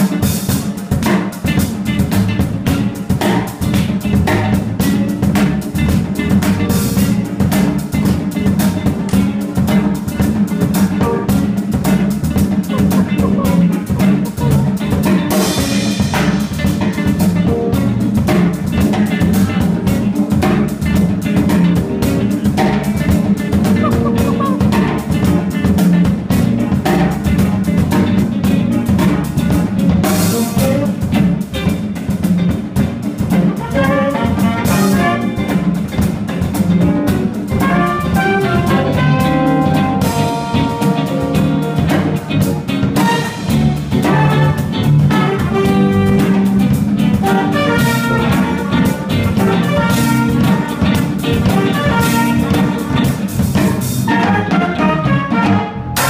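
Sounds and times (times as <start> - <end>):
drum kit beat: 0.0 - 56.0
keyboard: 0.0 - 56.0
saxophone: 23.6 - 25.6, 30.3 - 31.3, 33.3 - 35.7, 37.5 - 53.3, 54.0 - 56.0
trumpet lead line: 28.9 - 31.3, 33.3 - 35.8, 36.9 - 56.0.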